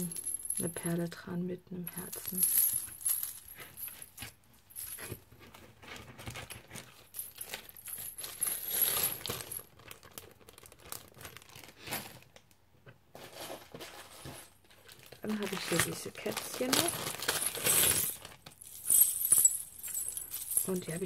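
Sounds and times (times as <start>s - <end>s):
key rings clinking and jingling: 0.0s - 0.7s, 2.0s - 5.1s, 17.4s - 21.0s
rustling: 1.9s - 11.8s, 13.2s - 21.0s.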